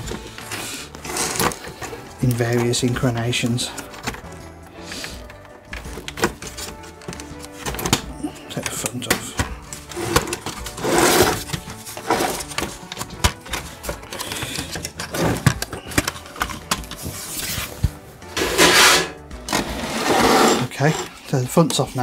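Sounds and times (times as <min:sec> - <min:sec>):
plastic clicks and scraping: 0:00.1 - 0:17.6.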